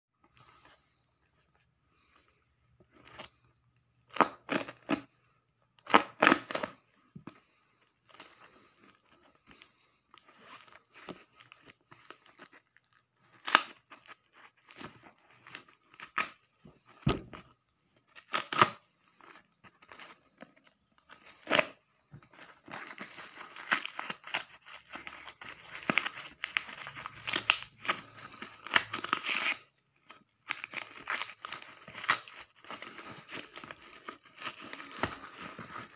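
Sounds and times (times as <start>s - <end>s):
plastic crinkling: 5.8s - 35.9s
tape ripping: 13.2s - 16.4s, 22.8s - 35.9s.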